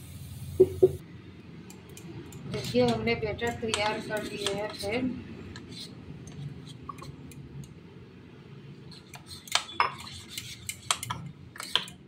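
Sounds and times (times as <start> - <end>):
spoon stirring thick batter: 2.3 - 7.6, 8.8 - 12.0.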